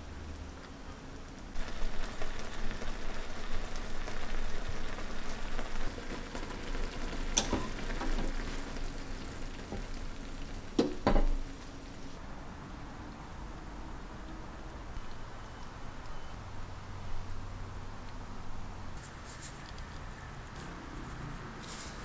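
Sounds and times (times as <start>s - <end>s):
food sizzling in frying pan: 1.6s - 12.2s.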